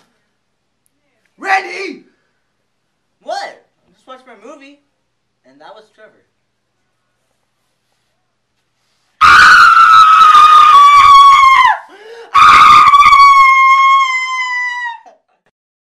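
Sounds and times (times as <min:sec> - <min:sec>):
man screaming: 0:09.2 - 0:15.1.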